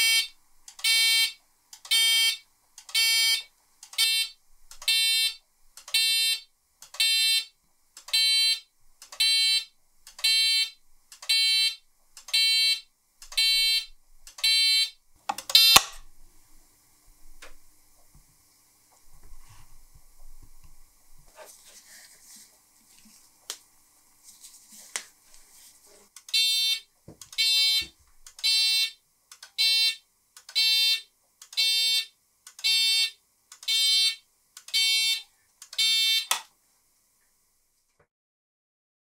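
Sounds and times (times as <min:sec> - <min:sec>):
electric alarm buzzer pulsing: 0:00.0 - 0:07.5, 0:08.1 - 0:12.8, 0:13.4 - 0:15.9, 0:26.3 - 0:29.0, 0:29.6 - 0:36.4.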